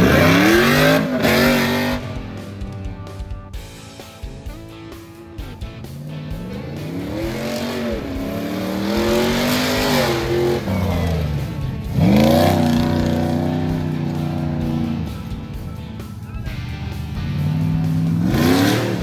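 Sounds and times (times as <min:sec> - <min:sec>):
off-road engine revving hard: 0:00.0 - 0:02.8, 0:05.8 - 0:15.7, 0:17.0 - 0:19.0.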